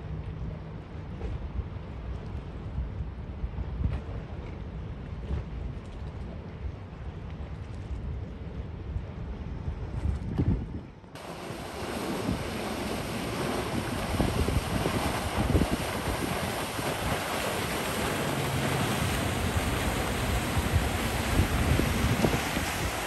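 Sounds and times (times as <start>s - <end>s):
faint low engine hum: 0.0s - 23.0s
wind buffeting microphone: 1.2s - 23.0s
rushing sea water and spray: 11.2s - 23.0s.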